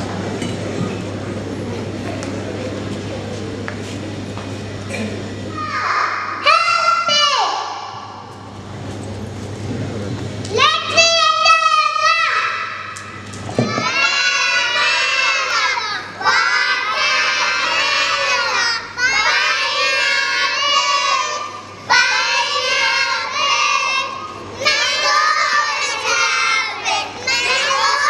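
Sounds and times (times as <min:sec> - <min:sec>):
children singing: 0:13.6 - 0:28.0.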